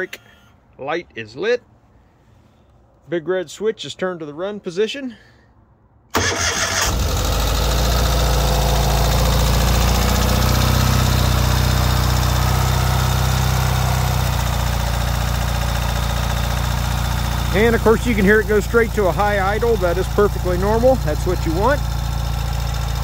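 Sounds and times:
motorcycle engine high idle: 7.1 - 23.0.

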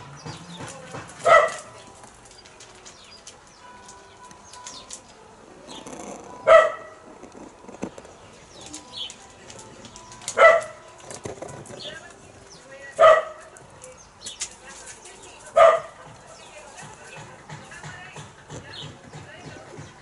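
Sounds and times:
dog barking: 1.2 - 1.8, 6.4 - 7.0, 10.4 - 10.8, 13.0 - 13.5, 15.5 - 16.0.

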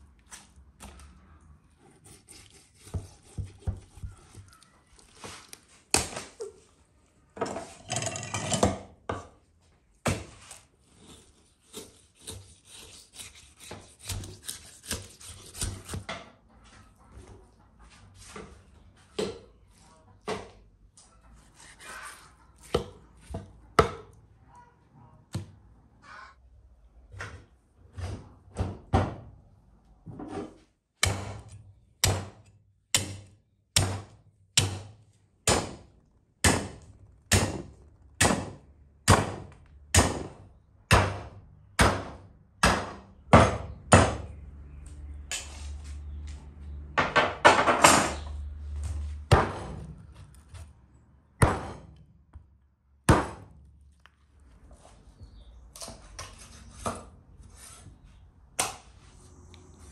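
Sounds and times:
cleaver chopping ribs on wood: 31.0 - 32.4, 33.0 - 35.8, 36.4 - 44.3, 53.1 - 53.5.

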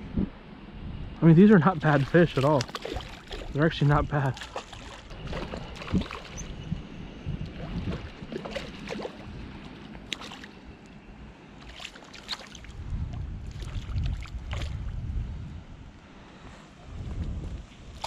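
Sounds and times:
wind rumble on microphone: 0.0 - 18.0
fish splashing in water: 1.8 - 3.6, 4.3 - 6.6, 7.6 - 10.6, 11.6 - 12.8.

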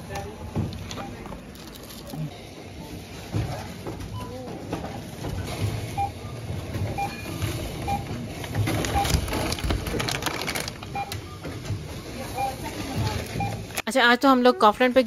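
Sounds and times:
groceries clattering and rustling: 0.0 - 13.8
barcode scanner beeps: 10.9 - 11.4, 12.3 - 13.7.

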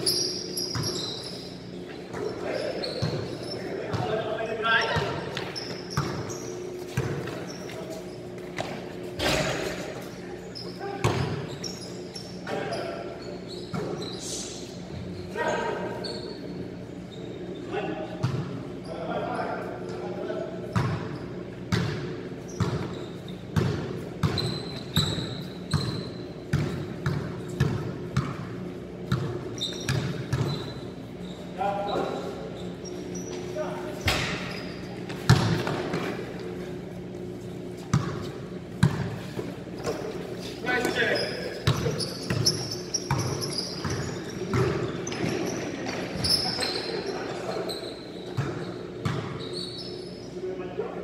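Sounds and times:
sneaker squeaks: 0.0 - 50.8
basketballs bouncing on court: 2.1 - 7.6, 10.8 - 11.5, 18.2 - 18.6, 20.7 - 30.8, 35.0 - 36.6, 37.8 - 40.2, 40.8 - 46.7, 48.2 - 49.6.

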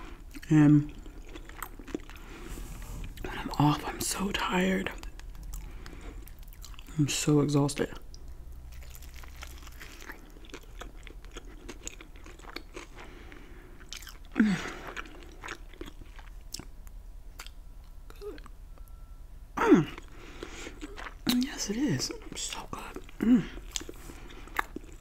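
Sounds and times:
chewing crunchy chicken: 0.0 - 3.6, 4.8 - 7.0, 7.8 - 16.8, 19.9 - 25.0.

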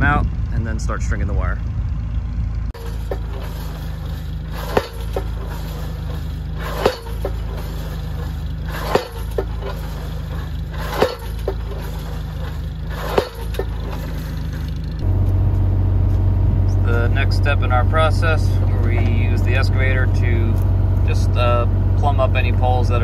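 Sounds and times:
tractor engine running: 0.0 - 23.0
post pounder striking post: 6.6 - 7.8, 13.0 - 14.1.

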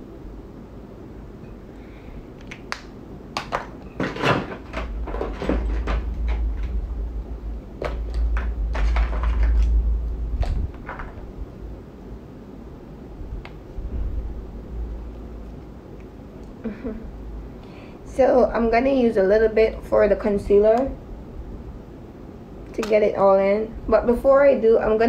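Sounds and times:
low rumble: 4.9 - 15.7
handling noise on phone microphone: 7.8 - 11.4.

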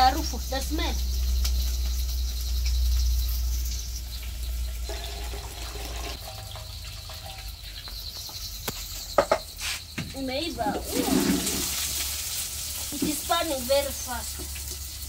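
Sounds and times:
water pouring into metal basin: 4.1 - 7.7, 10.6 - 15.0.

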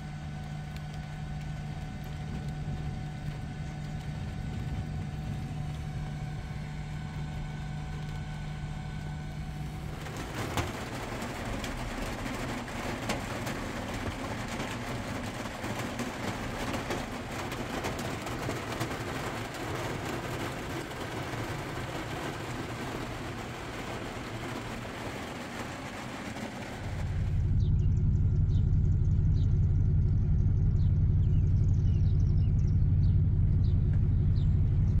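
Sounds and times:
rain on vehicle roof: 0.0 - 27.5
steady low rumble: 0.0 - 35.0.

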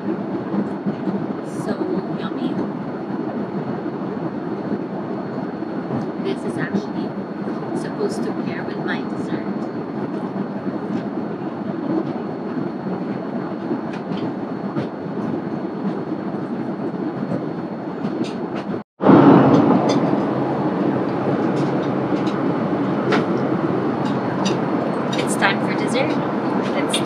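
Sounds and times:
airliner cabin drone: 0.0 - 27.0.

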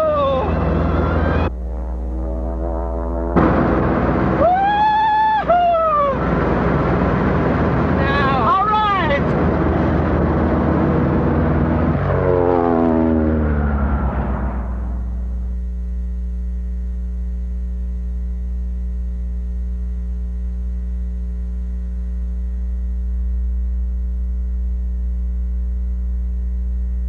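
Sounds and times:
electrical mains hum: 15.2 - 27.0.

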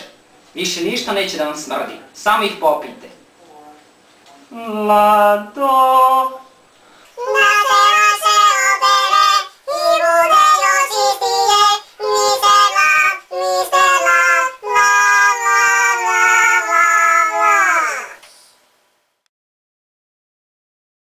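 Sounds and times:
high-pitched voice singing: 7.2 - 18.5.

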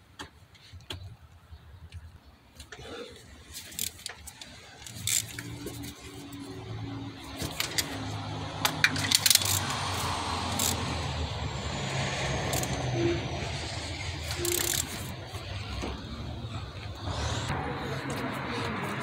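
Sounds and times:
ratchet clicking: 3.6 - 6.2, 7.4 - 11.2, 11.9 - 12.9, 13.5 - 15.5.

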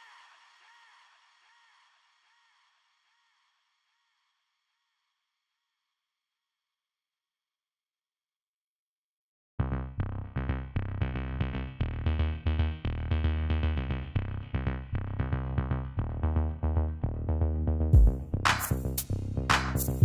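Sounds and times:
electronic music with drum-machine beat: 18.0 - 20.0.

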